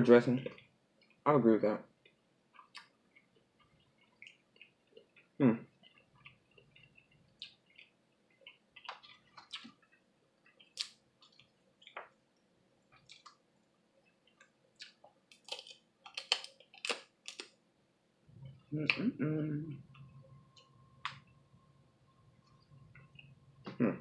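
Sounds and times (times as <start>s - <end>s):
chewing: 2.0s - 12.2s, 12.9s - 17.6s
wet mouth smacks and clicks: 2.6s - 3.0s.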